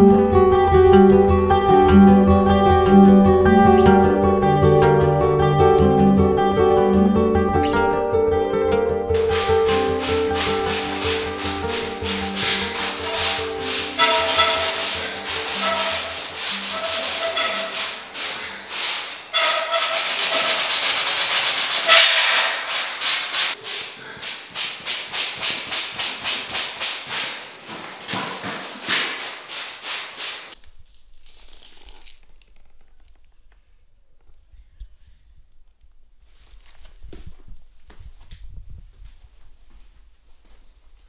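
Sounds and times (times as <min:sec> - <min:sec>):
background music: 0:00.0 - 0:17.9
plastering knife scraping: 0:09.2 - 0:30.6.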